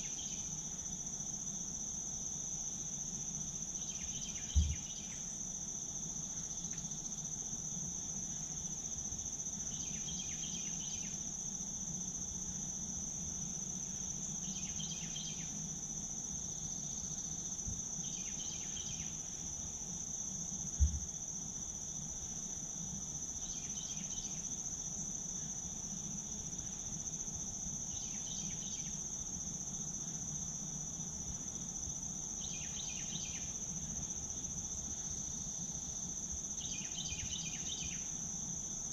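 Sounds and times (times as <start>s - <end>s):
lower buzzy insect call: 0.0s - 38.9s
low thump: 4.5s - 4.8s, 20.8s - 21.1s.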